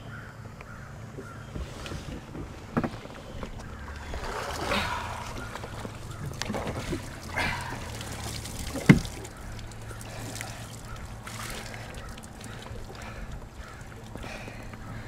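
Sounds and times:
boat engine idling: 0:00.4 - 0:15.0
water trickling and dripping: 0:03.0 - 0:15.0.

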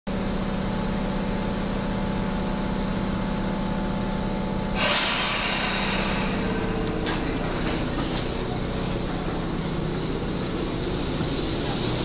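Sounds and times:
steady electrical hum: 0:00.3 - 0:12.0
compressed air hissing: 0:04.7 - 0:12.0.

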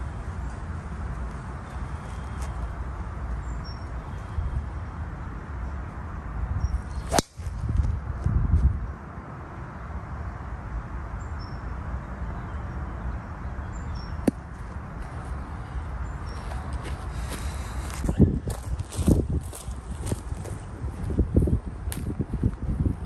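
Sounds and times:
low outdoor rumble: 0:00.0 - 0:23.0
footsteps on grass: 0:16.3 - 0:21.2.

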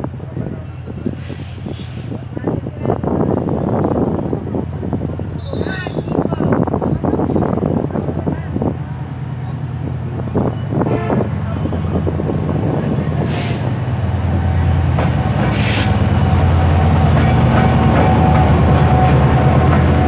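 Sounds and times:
diesel locomotive engine drone: 0:00.0 - 0:20.0
short bursts of hiss: 0:01.1 - 0:02.1.

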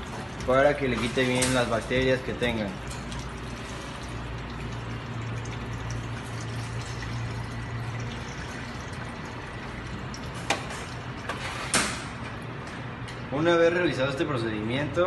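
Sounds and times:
water splashing into metal bowl: 0:00.0 - 0:11.4.

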